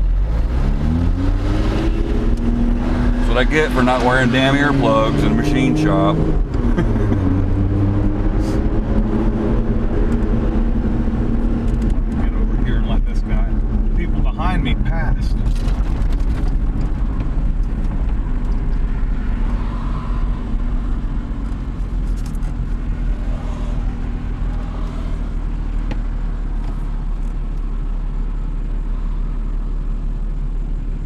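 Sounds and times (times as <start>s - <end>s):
car engine drone: 0.0s - 31.0s
tyre and road noise: 0.0s - 31.0s.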